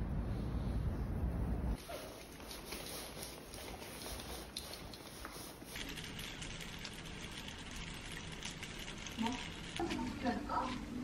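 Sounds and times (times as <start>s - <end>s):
footsteps on tiled floor: 1.8s - 6.4s
kitchen tap running water: 4.4s - 10.5s.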